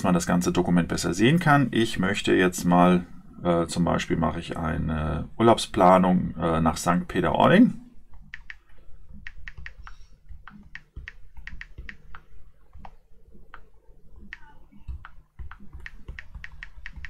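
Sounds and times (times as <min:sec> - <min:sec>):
light taps on touchscreen keyboard: 0:08.1 - 0:17.0.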